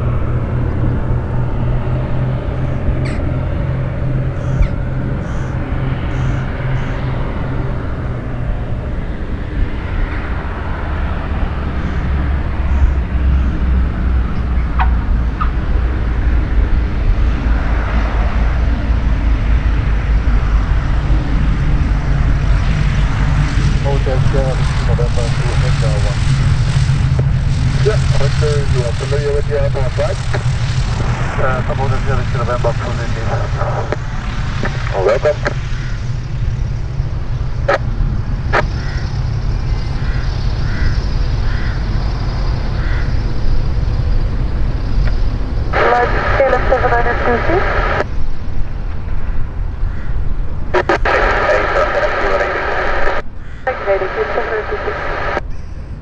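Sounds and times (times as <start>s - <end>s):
twin piston aircraft engines droning: 0.0s - 56.0s
crows cawing: 35.6s - 36.2s, 38.6s - 39.2s, 39.9s - 41.9s, 42.7s - 43.2s, 49.8s - 50.2s, 53.4s - 53.7s.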